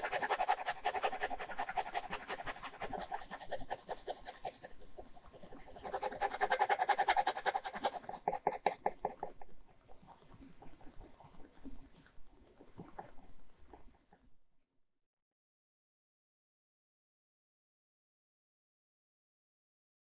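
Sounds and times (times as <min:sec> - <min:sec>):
ballpoint pen scratching paper: 0:00.0 - 0:14.2.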